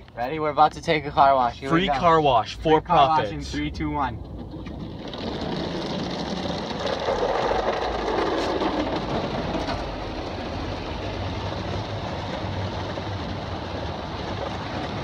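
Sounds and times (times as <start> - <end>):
water spraying on car: 3.9 - 15.0.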